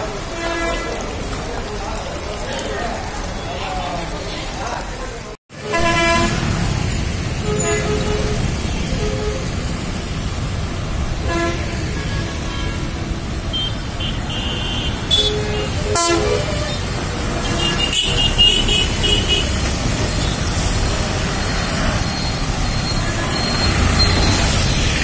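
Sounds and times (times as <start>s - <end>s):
road traffic rumble: 0.0s - 25.0s
vehicle horn toots: 5.6s - 6.6s, 7.4s - 9.6s, 11.2s - 12.9s, 13.5s - 19.6s.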